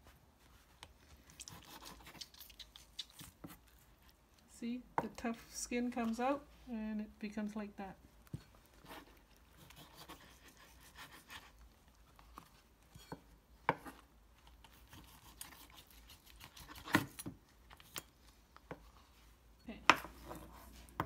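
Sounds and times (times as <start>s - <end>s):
knife scraping meat: 1.3s - 3.7s, 8.8s - 11.6s, 14.6s - 17.2s.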